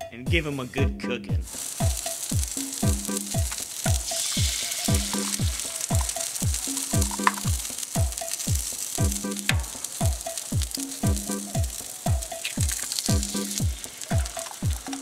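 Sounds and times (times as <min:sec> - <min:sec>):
music with kick drums: 0:00.0 - 0:15.0
food sizzling in grease: 0:01.4 - 0:15.0.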